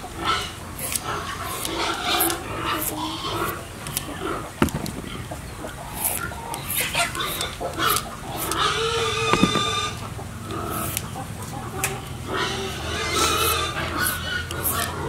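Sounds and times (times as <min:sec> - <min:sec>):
chickens clucking: 0:00.0 - 0:15.0
peeler scraping cucumber: 0:13.3 - 0:15.0.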